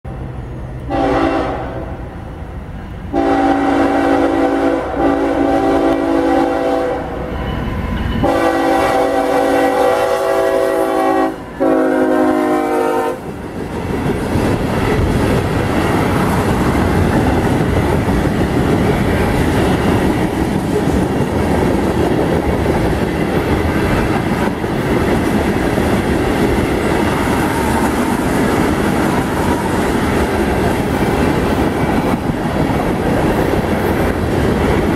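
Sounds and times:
train cars rumbling on rails: 0.0 - 34.9
train horn blasts: 0.9 - 2.0, 3.1 - 13.3.

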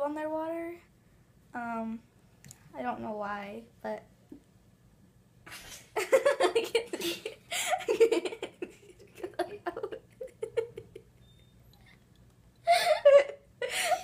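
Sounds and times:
girl giggling: 5.5 - 11.2, 12.6 - 14.0.

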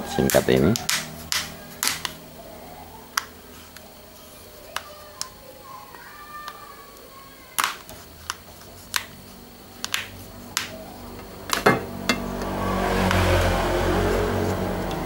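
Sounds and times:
low engine drone: 0.0 - 4.5, 8.9 - 15.0
plastic clicks and snaps: 0.2 - 2.2, 6.4 - 9.2, 9.8 - 10.7.

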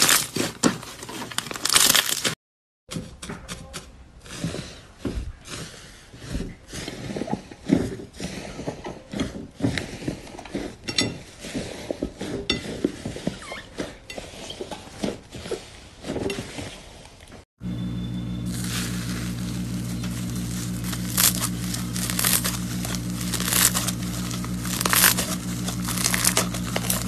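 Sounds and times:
foil crinkling and crackling: 0.0 - 2.4, 18.3 - 27.0
slime squishing and popping: 20.8 - 27.0.

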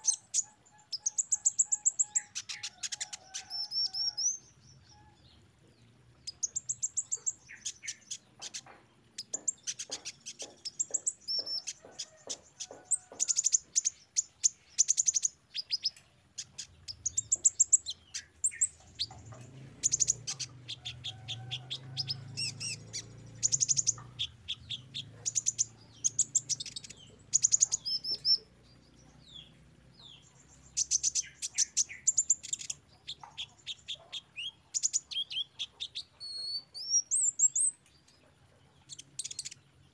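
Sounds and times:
sunbird twittering chirps and trills: 0.0 - 39.9.

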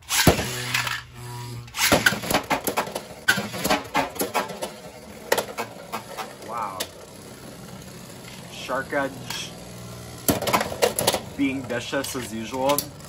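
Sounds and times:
spinning top humming: 0.0 - 13.0
plastic and metal clacks: 1.8 - 7.0, 10.2 - 13.0.

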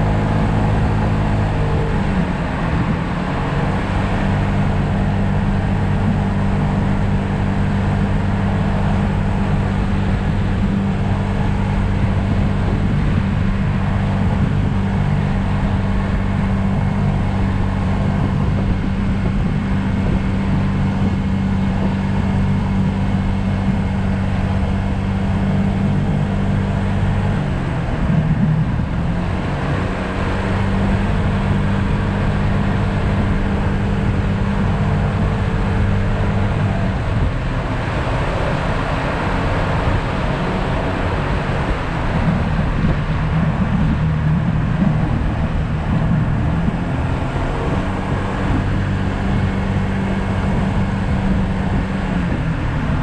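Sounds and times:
wind and road noise: 0.0 - 53.0
scooter engine running: 30.5 - 53.0.

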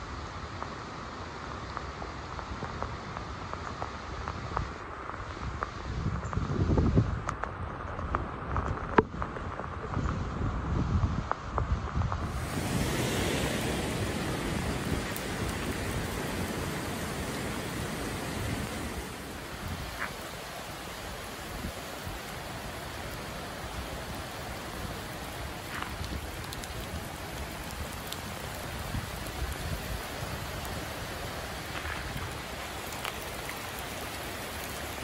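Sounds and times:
wind buffeting microphone: 5.4 - 35.0
heavy rain pouring: 12.1 - 35.0.

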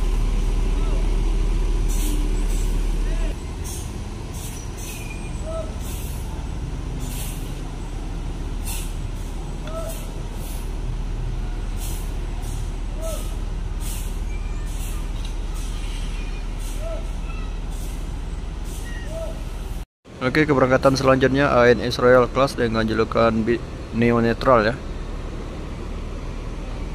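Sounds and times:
diesel bus engine running: 0.0 - 26.9
air brake hisses: 1.8 - 2.7, 3.6 - 6.3, 7.0 - 7.6, 8.6 - 10.7, 11.7 - 17.0, 17.7 - 19.3.

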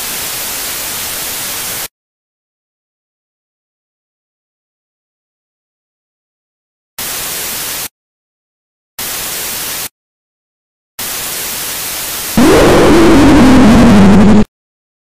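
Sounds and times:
harsh tv static hiss: 0.0 - 1.9, 7.0 - 7.9, 9.0 - 9.9, 11.0 - 12.6
distorted static with wavering tone: 11.2 - 14.5.

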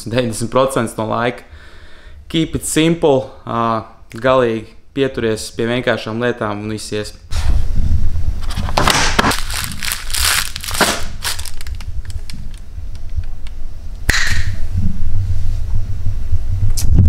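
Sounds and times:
steady low hum: 0.0 - 17.0
crunching crinkling food handling: 9.2 - 12.6
sharp click: 13.4 - 14.6.

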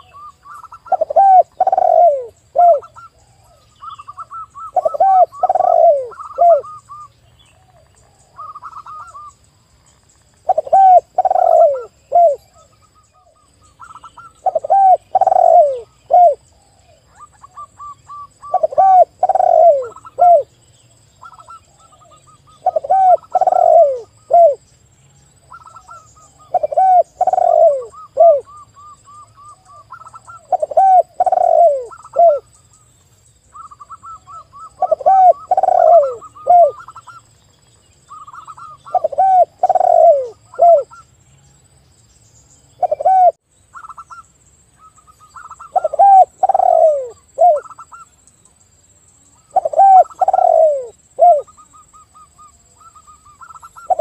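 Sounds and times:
spotted dove cooing: 0.0 - 9.3, 10.4 - 16.4, 17.1 - 20.5, 21.2 - 24.6, 25.5 - 32.5, 33.5 - 37.2, 38.1 - 41.0, 42.8 - 44.1, 44.9 - 48.0, 49.5 - 54.0.

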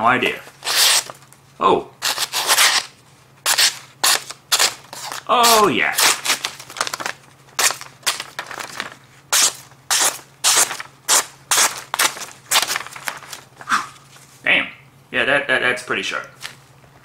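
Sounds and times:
knife slicing paper: 0.6 - 1.2, 2.0 - 14.0.

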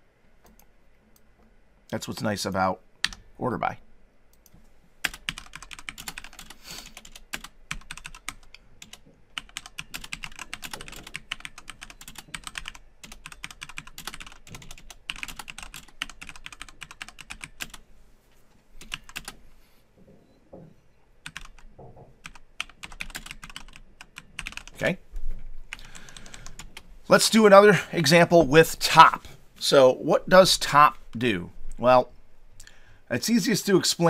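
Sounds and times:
typing on computer keyboard: 5.0 - 17.8, 18.8 - 19.4, 21.2 - 24.7.

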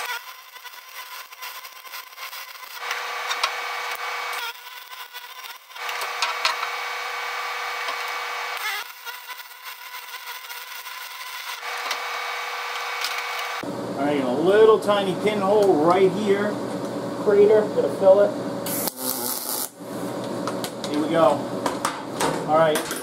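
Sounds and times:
welding arc crackling sizzle: 0.0 - 13.6, 18.6 - 19.8.

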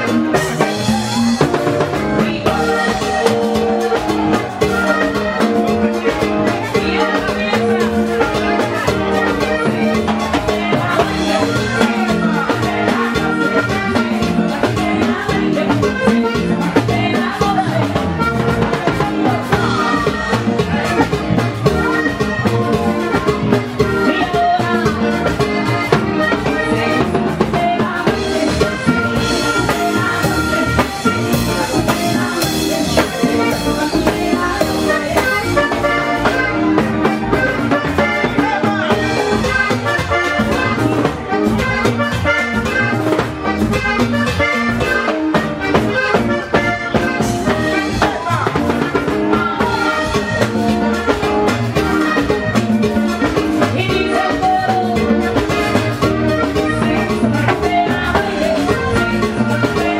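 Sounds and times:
button accordion melody: 0.0 - 59.9
drum kit: 0.0 - 59.9
hand drum beat: 0.0 - 59.9.

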